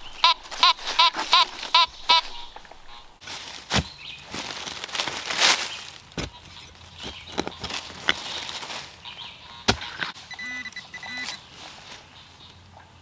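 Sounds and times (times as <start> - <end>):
metal detector beeps: 10.2 - 11.4.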